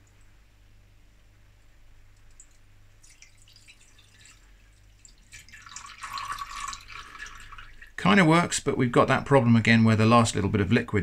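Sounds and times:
water pouring into pan: 0:02.4 - 0:08.0.

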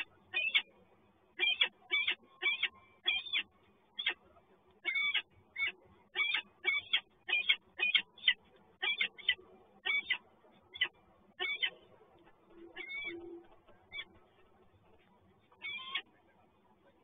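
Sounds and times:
falcon calling: 0:12.5 - 0:14.2.

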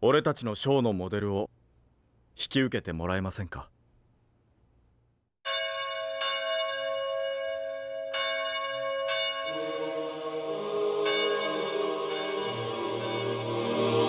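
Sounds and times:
bell ringing: 0:05.5 - 0:14.0.

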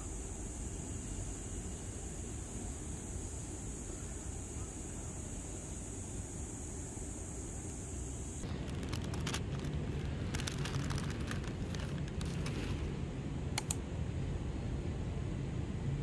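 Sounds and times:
steady low hum: 0:00.0 - 0:16.0
paper bag crinkling: 0:08.4 - 0:12.9
sharp ticks: 0:13.6 - 0:13.8.

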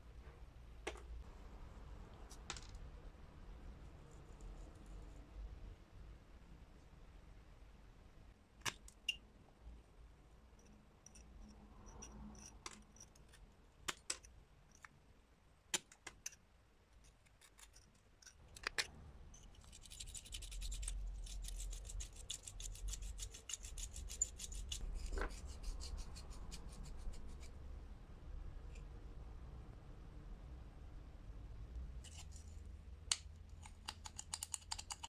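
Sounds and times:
scratches and clicks: 0:17.0 - 0:27.5, 0:32.0 - 0:35.0.

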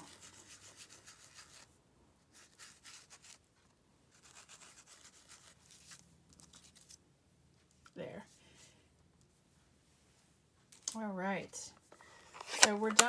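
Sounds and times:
sponge rubbing on card: 0:00.0 - 0:01.7, 0:02.3 - 0:03.4, 0:04.1 - 0:06.0.

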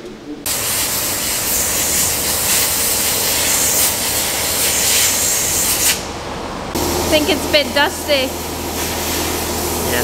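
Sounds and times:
compressed air blow gun hissing: 0:00.5 - 0:06.1.

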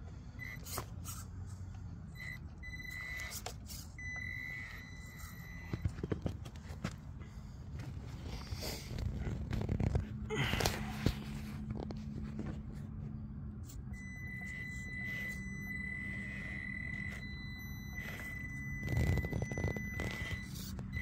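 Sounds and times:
high-pitched whine: 0:02.1 - 0:06.4, 0:08.2 - 0:21.0
electric motor hum: 0:08.1 - 0:21.0.

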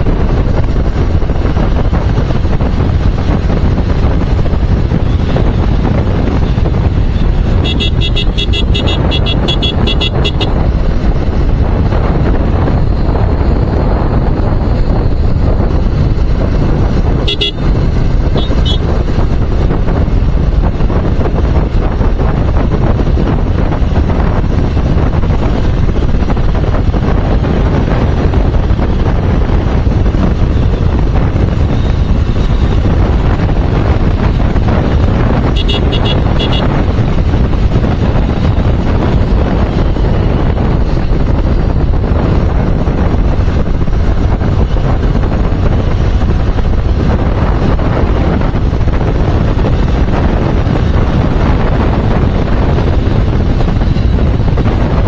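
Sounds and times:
motorcycle running: 0:00.0 - 0:55.0
wind rushing over microphone: 0:00.0 - 0:55.0
high-pitched horn beeps: 0:07.1 - 0:10.6, 0:17.2 - 0:17.6, 0:18.4 - 0:18.9, 0:35.5 - 0:36.7.

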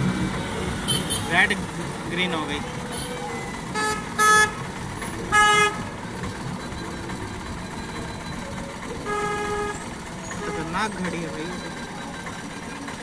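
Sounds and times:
vehicle horn honking: 0:00.8 - 0:01.4, 0:03.8 - 0:04.6, 0:05.3 - 0:05.9, 0:09.0 - 0:10.9.

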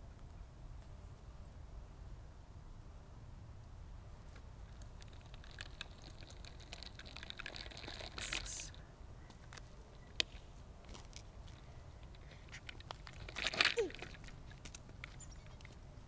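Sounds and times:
cat rolling on asphalt: 0:04.2 - 0:08.8, 0:09.4 - 0:16.0
grit clicking: 0:04.7 - 0:08.6.

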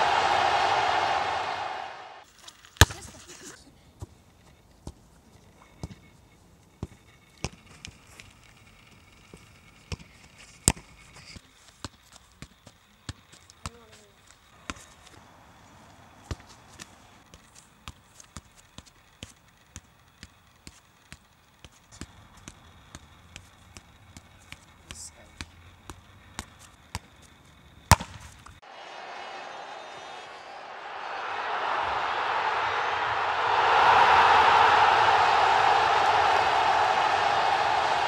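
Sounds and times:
football kicks on grass: 0:27.9 - 0:28.3.

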